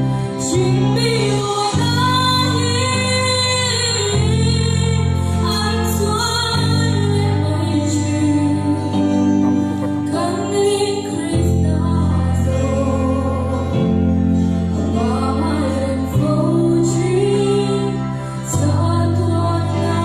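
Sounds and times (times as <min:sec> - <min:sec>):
backing track chords: 0:00.0 - 0:20.0
women singing a hymn: 0:14.8 - 0:20.0.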